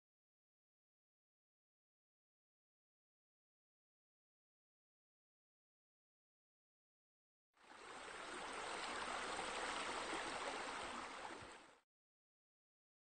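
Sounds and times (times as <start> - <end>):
flowing water: 7.6 - 11.8.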